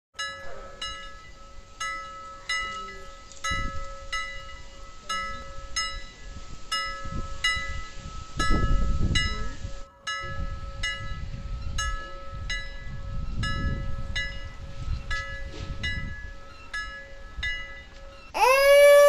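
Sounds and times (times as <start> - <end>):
loud wailing cry: 18.4 - 19.0.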